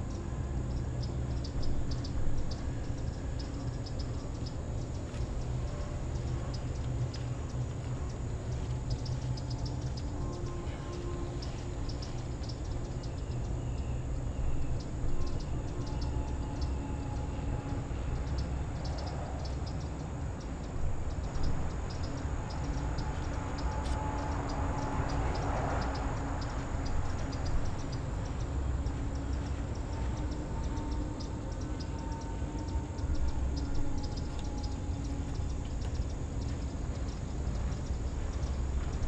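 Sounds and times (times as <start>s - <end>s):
distant vehicles rumbling: 0.0s - 39.0s
rapid high-pitched ticks: 1.0s - 13.5s.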